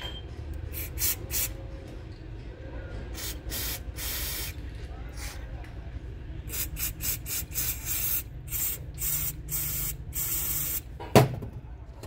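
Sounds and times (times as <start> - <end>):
aerosol spray can hissing: 0.7 - 1.5, 3.2 - 4.6, 6.5 - 10.8.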